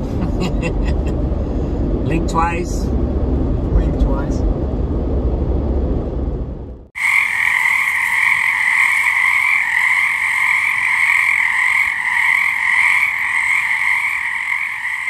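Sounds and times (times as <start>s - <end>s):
chorus of frogs: 7.0s - 15.0s.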